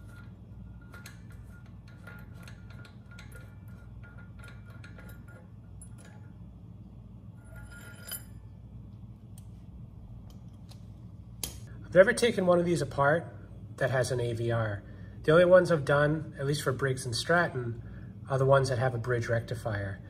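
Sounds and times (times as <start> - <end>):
small metal parts clicking: 0.0 - 6.4
ringing metal clink: 0.0 - 6.7, 7.4 - 8.6
low hum: 0.0 - 16.8.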